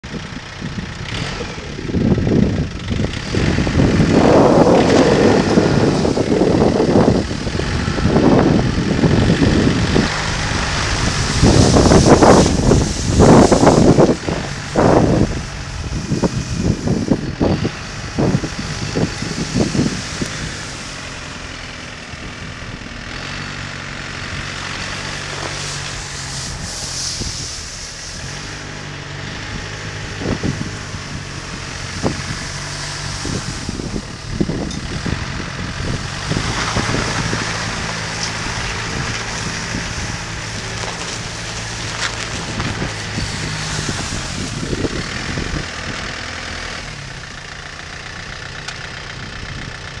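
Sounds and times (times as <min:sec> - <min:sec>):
tractor diesel engine running: 0:00.0 - 0:50.0.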